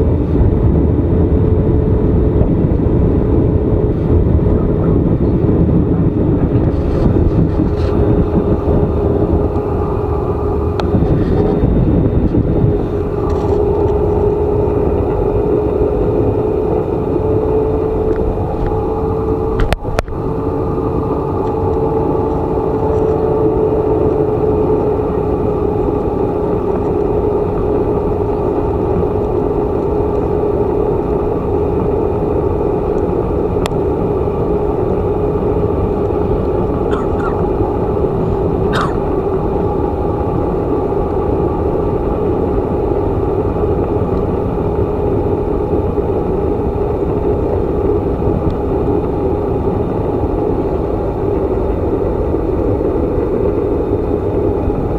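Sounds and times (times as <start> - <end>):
airliner engines droning: 0.0 - 54.9.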